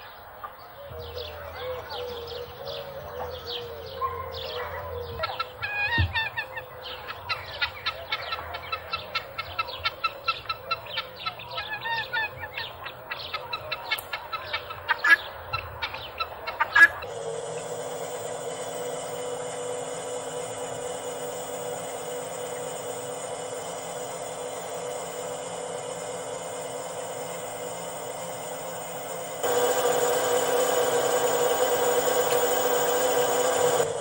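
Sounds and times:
poultry clucking: 0.3s - 17.7s
steady hum: 0.9s - 34.0s.

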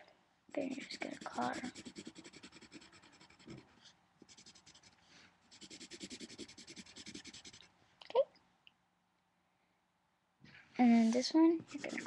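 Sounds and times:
pencil shading on paper: 0.6s - 7.7s, 11.6s - 12.0s.

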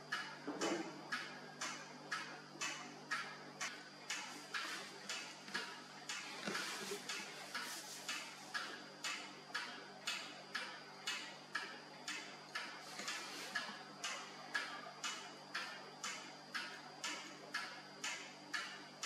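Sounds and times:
sharp ringing ticks: 7.1s - 19.0s.

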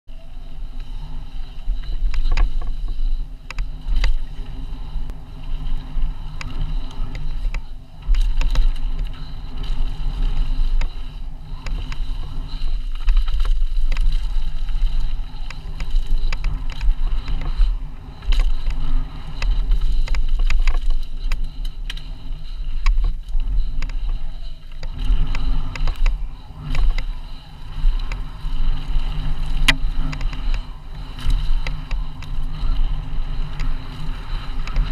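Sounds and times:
bike clicks and rattles: 0.1s - 34.9s
tyre noise on dirt: 0.1s - 34.9s
wind buffeting microphone: 0.1s - 34.9s.

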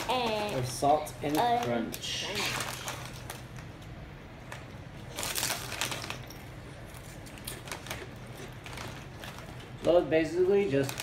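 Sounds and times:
foil bag crinkling: 0.0s - 3.8s, 4.4s - 11.0s
potato chips crunching: 4.5s - 11.0s.

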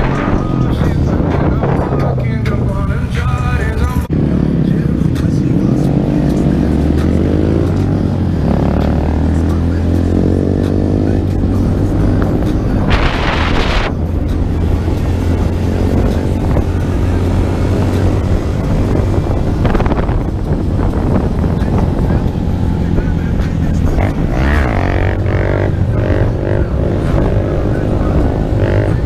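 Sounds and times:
wind on microphone: 0.0s - 4.2s, 11.0s - 29.0s
motorcycle engine running: 0.0s - 29.0s.

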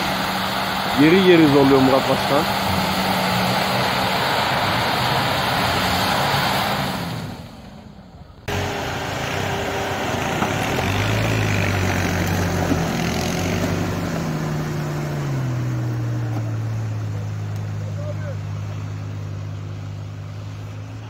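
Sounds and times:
engine pulling under load: 0.0s - 21.0s
tyres crunching in snow: 8.5s - 21.0s.

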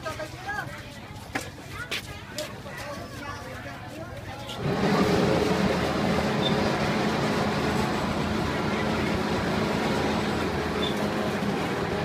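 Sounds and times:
motor hum: 4.6s - 12.0s.

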